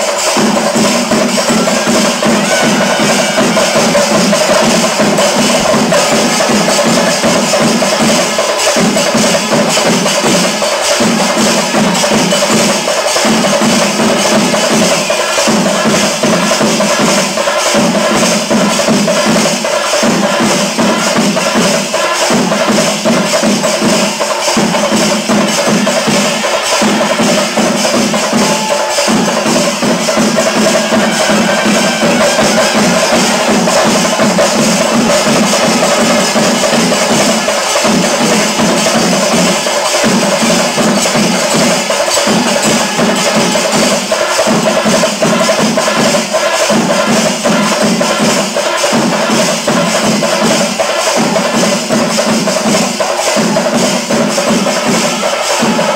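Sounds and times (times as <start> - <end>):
percussion-led music: 0.0 - 55.9.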